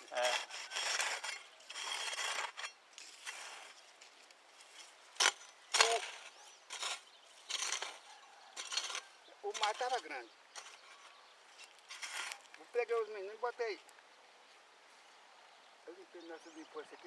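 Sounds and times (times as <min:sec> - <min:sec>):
hoe scraping and chopping soil: 0:00.0 - 0:13.1.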